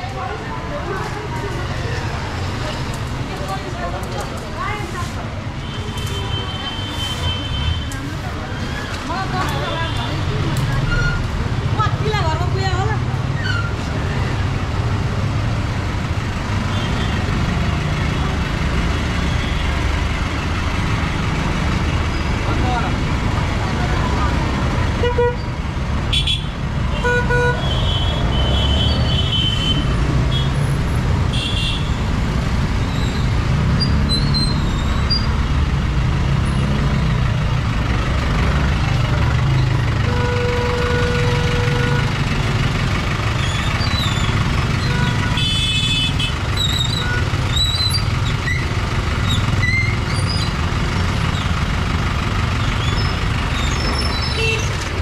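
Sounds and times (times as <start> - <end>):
vehicle engines running: 0.0 - 55.0
held car horn: 40.1 - 42.1.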